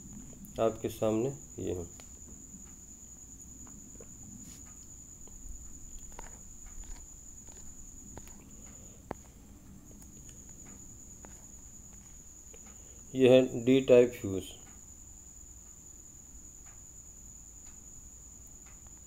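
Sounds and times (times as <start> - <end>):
thin high-pitched whine: 0.0 - 19.0
faint clicks and knocks: 3.6 - 12.8.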